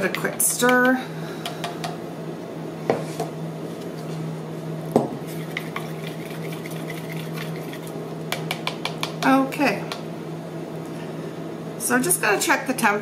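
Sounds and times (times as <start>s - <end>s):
steady low hum: 0.0s - 13.0s
stirrer scraping plastic pitcher: 5.2s - 8.0s.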